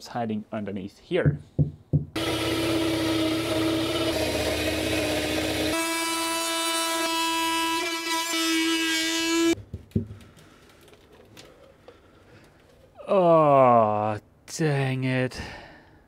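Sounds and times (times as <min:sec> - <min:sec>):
power tool high-pitched whine: 0:02.2 - 0:09.6.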